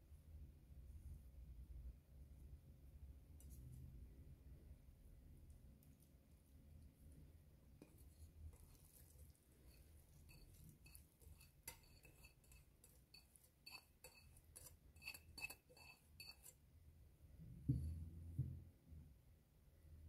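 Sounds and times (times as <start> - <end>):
rice clinking against bowl and pot: 7.8 - 16.6.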